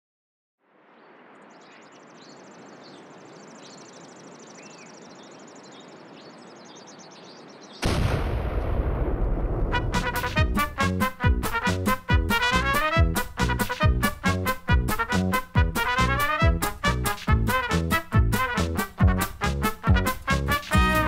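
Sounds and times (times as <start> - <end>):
loud rumbling explosion: 7.8 - 10.7
brass and drums band tune: 9.6 - 21.0.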